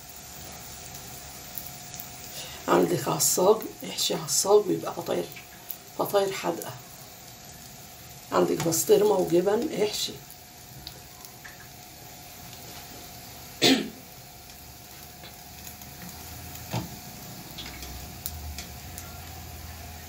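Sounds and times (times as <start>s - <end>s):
ghee sizzling in a frying pan: 0.0s - 20.0s
person coughing: 13.6s - 14.0s.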